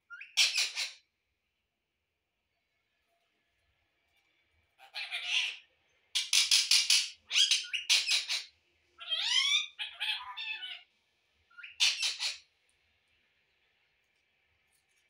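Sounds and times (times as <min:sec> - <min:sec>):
parakeet squawking: 0:00.1 - 0:01.0, 0:04.8 - 0:10.9, 0:11.5 - 0:12.5.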